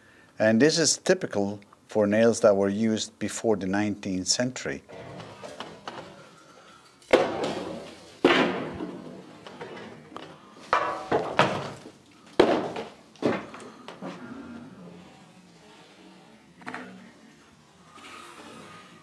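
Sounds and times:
wooden planks dropping onto pile: 7.1s - 14.0s.

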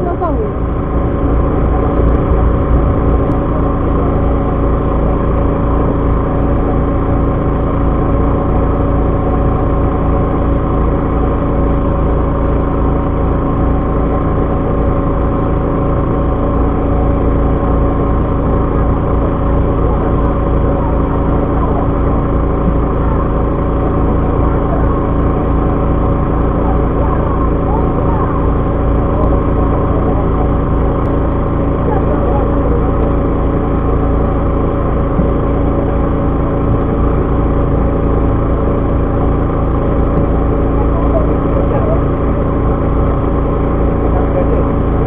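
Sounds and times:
boat engine droning: 0.0s - 45.0s.

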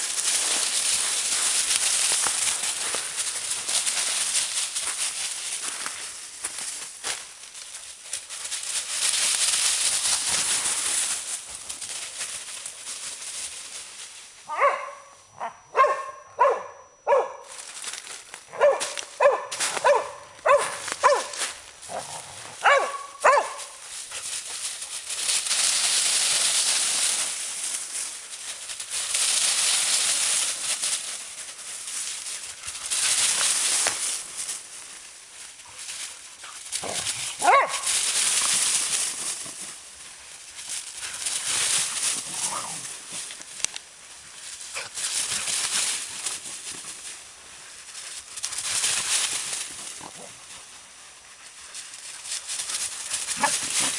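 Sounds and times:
dry leaves rustling: 0.0s - 53.9s
dog barking: 14.5s - 17.5s, 18.5s - 21.4s, 22.6s - 23.8s, 37.4s - 37.9s.

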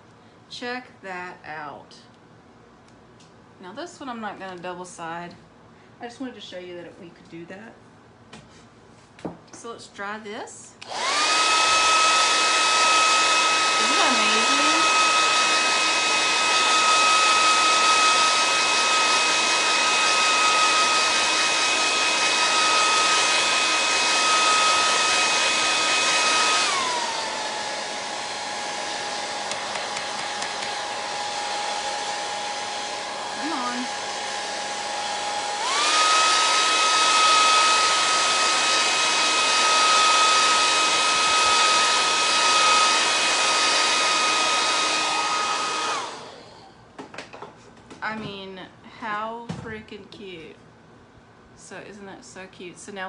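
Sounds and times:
hair dryer blowing: 10.8s - 46.8s.

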